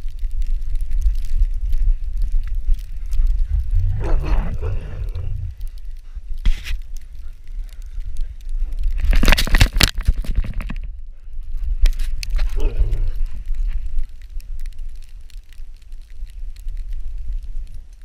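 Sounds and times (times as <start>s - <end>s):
fur and snow rubbing microphone: 3.2s - 7.0s, 12.0s - 13.8s
dog grumbling: 3.8s - 5.4s.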